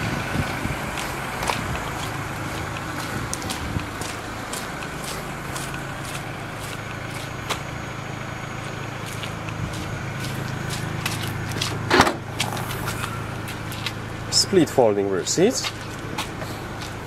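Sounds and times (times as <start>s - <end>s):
engine idling hum: 0.0s - 17.0s
footsteps scuffing on concrete: 0.4s - 7.7s, 9.0s - 14.0s, 15.6s - 17.0s.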